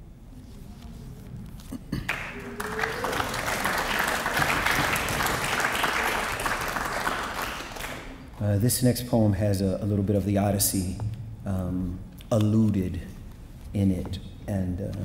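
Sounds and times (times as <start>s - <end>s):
audience applauding: 2.0s - 8.3s.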